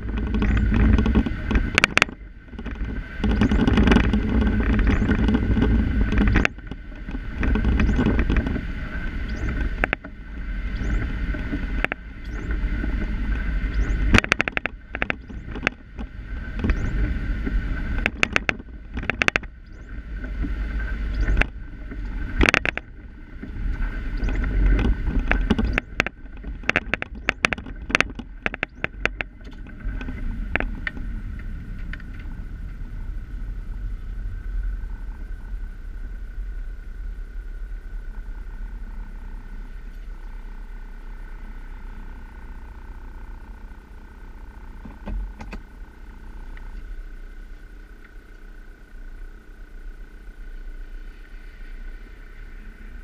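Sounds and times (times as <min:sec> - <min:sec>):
sharp rattling clicks: 0:00.0 - 0:08.6, 0:09.2 - 0:10.1, 0:13.7 - 0:23.1, 0:23.7 - 0:32.4, 0:42.6 - 0:50.7
car engine and tyre rumble: 0:00.0 - 0:53.0.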